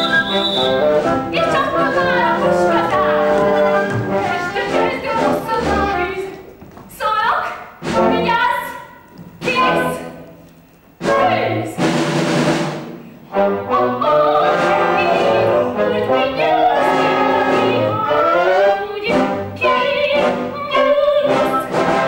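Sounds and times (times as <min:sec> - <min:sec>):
pit orchestra with brass: 0:00.0 - 0:05.0, 0:11.8 - 0:22.0
chorus singing: 0:00.0 - 0:06.3, 0:13.3 - 0:22.0.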